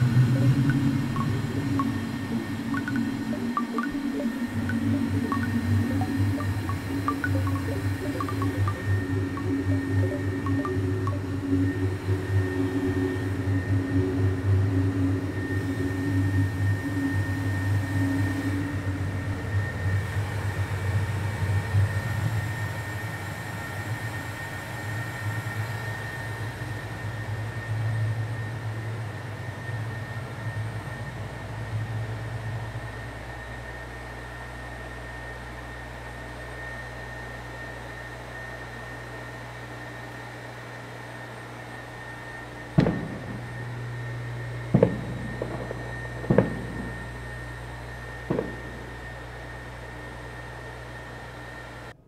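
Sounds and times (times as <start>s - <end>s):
low electronic hum: 0.0s - 38.0s, 40.0s - 52.0s
faint high tone: 0.4s - 11.4s.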